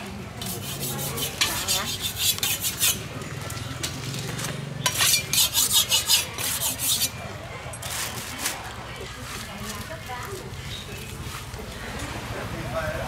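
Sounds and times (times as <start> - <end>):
knife scraping on sharpening steel: 0.4 - 3.0, 4.8 - 7.2.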